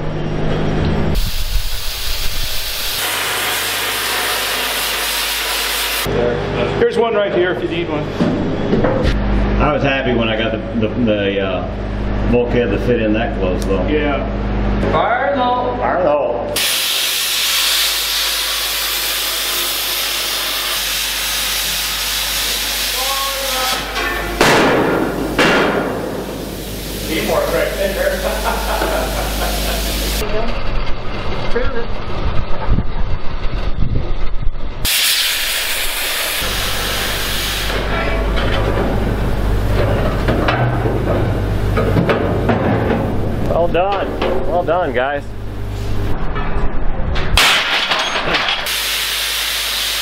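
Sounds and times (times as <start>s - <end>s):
steady low hum: 0.0s - 16.6s, 20.6s - 34.9s, 35.6s - 47.7s
plasma cutter hissing: 1.2s - 6.1s, 16.6s - 30.2s, 34.8s - 37.9s, 48.6s - 50.0s.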